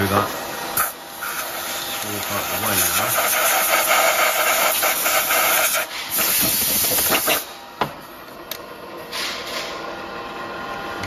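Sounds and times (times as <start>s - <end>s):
compressed air hissing: 0.8s - 7.5s.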